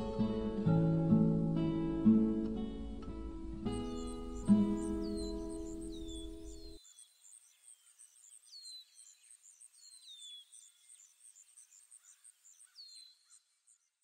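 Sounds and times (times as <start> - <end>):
fast high chirping: 3.4 - 6.8
bird whistle: 3.8 - 6.8.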